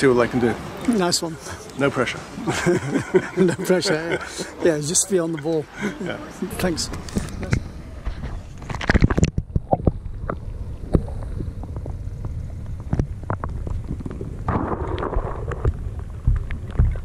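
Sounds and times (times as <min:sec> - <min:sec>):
murmur of voices: 0:00.0 - 0:08.6
wind buffeting microphone: 0:06.5 - 0:17.0
low rumble: 0:07.0 - 0:17.0.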